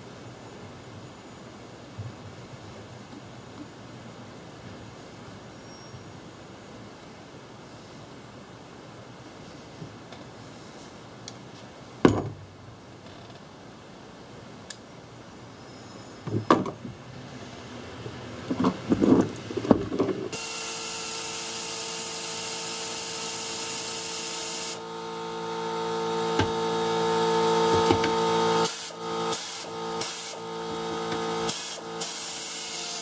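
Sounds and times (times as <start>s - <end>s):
air compressor running: 20.3s - 33.0s
air hissing: 27.4s - 30.6s, 31.3s - 33.0s.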